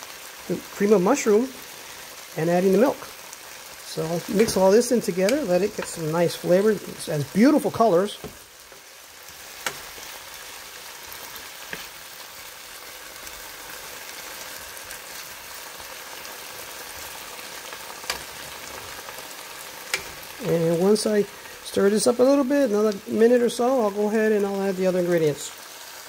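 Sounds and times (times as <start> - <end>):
food sizzling in frying pan: 0.0 - 26.0
wooden spatula stirring: 3.9 - 12.5.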